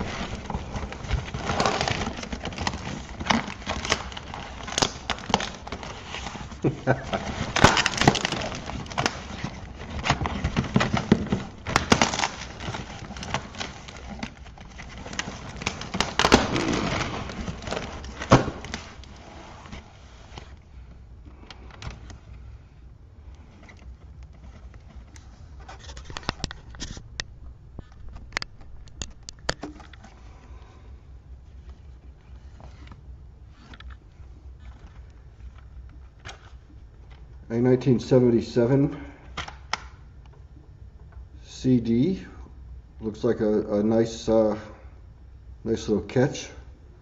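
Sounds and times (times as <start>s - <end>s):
cardboard box being torn open: 0.0s - 9.4s, 10.0s - 14.4s, 15.0s - 19.0s.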